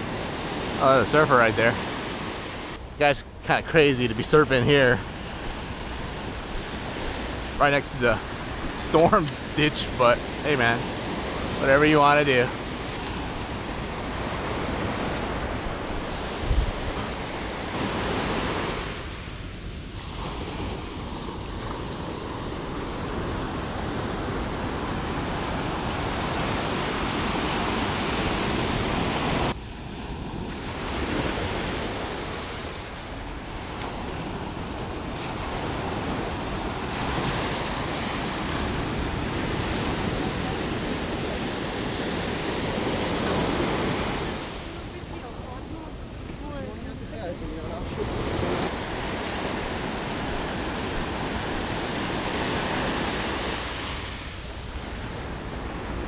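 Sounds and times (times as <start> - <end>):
ocean surf breaking: 0.0 - 56.0
wind buffeting microphone: 0.0 - 56.0.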